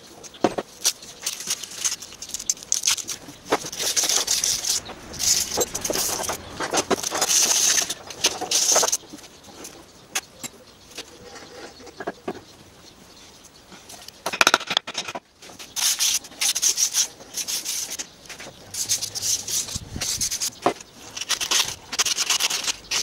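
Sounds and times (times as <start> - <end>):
metal plates clicking and scraping: 0.2 - 9.0.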